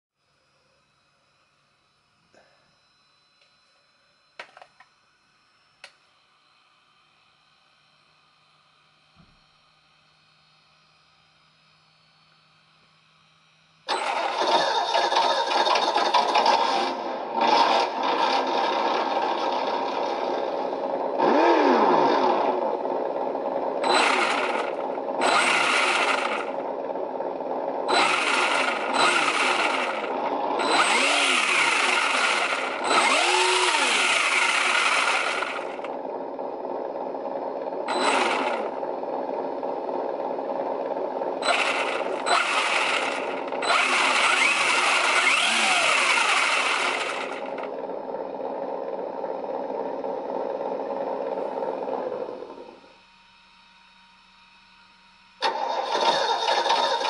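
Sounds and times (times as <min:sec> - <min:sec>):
electronic engine sound revving: 0:13.9 - 0:52.8.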